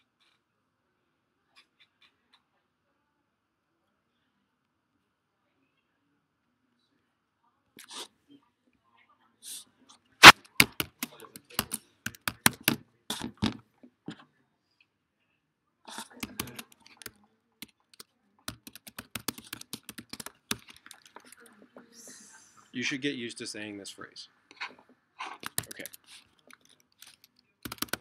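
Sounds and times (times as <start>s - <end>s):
laptop keyboard and trackpad clicks: 10.2s - 12.8s, 16.2s - 21.4s, 25.4s - 28.0s.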